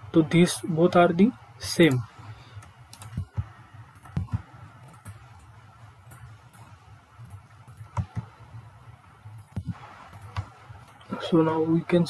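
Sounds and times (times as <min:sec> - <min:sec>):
low steady hum: 0:00.0 - 0:12.0
computer mouse clicking: 0:01.8 - 0:08.5, 0:09.3 - 0:11.1.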